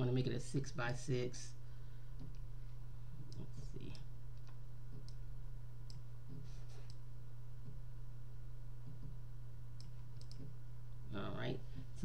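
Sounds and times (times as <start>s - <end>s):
low electrical hum: 0.0s - 12.0s
computer mouse clicks: 2.2s - 2.5s, 3.3s - 5.2s, 5.9s - 7.0s, 9.8s - 10.5s.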